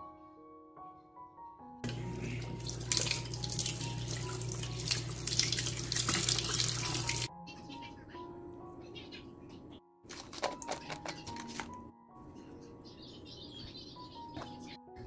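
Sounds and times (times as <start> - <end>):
kitchen tap running: 1.8 - 7.3
water splashing over lemon: 1.8 - 7.3.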